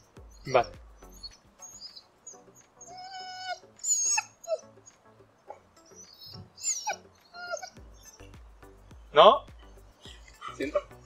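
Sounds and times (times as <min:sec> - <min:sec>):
dog whining: 0:00.2 - 0:08.3.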